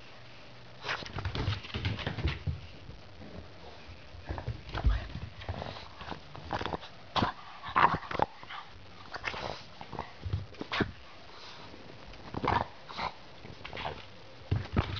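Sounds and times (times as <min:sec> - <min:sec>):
dog sniffing and snuffling: 0:03.6 - 0:14.0.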